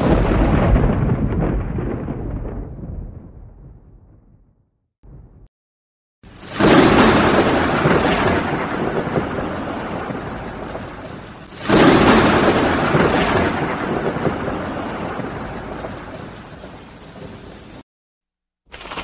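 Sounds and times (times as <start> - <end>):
thunder clap and rumble: 0.0 - 5.5, 6.3 - 17.8
rain hissing: 6.2 - 17.8, 18.7 - 19.0.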